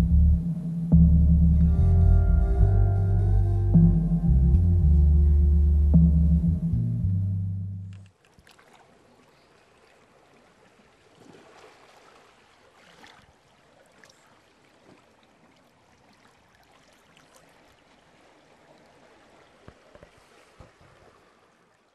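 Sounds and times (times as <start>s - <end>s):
water lapping and trickling: 7.9s - 21.9s.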